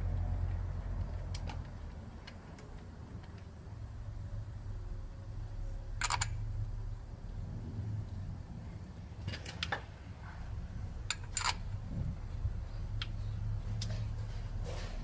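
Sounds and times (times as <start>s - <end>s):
steady low hum: 0.0s - 15.0s
metallic clicks of bolts: 6.0s - 6.4s, 9.2s - 10.0s, 11.0s - 11.7s.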